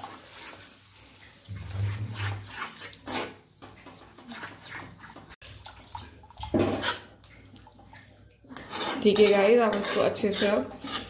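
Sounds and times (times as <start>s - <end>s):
spoon scraping against pan: 1.5s - 5.4s, 6.5s - 7.4s, 8.5s - 11.0s
metal spoon stirring wet food: 1.5s - 11.0s.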